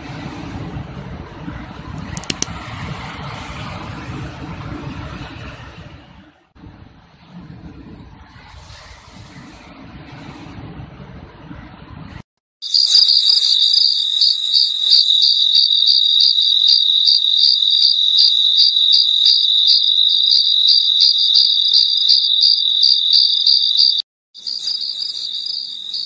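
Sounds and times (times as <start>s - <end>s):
insect chirring: 12.6s - 26.0s.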